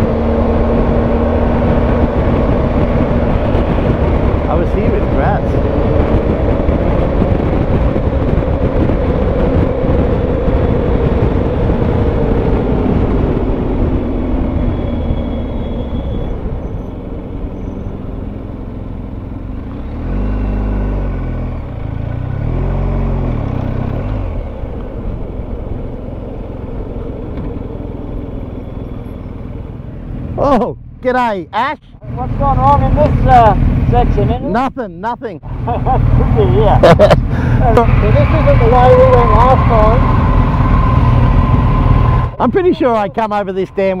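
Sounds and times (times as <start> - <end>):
wind rushing: 0.0 - 20.2, 32.0 - 44.0.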